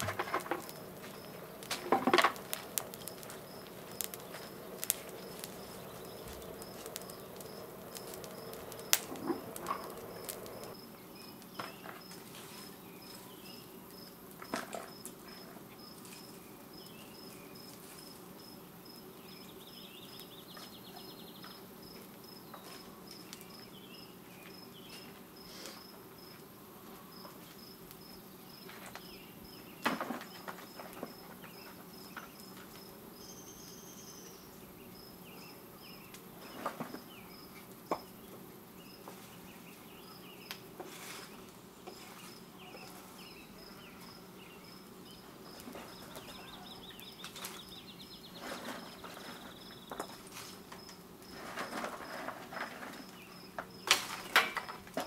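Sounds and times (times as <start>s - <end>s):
insects chirping: 0.0s - 55.0s.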